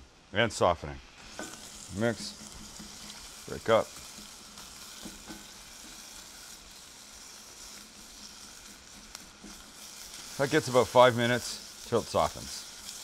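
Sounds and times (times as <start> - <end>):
onion sizzling in a pan: 0.0 - 13.0
spatula stirring in a pan: 1.1 - 13.0.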